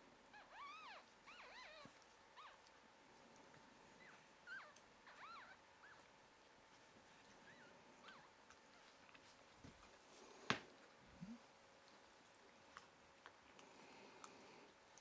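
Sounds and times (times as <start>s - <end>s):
puppies squeaking and whimpering: 0.3s - 2.6s, 4.0s - 6.1s, 7.4s - 8.4s.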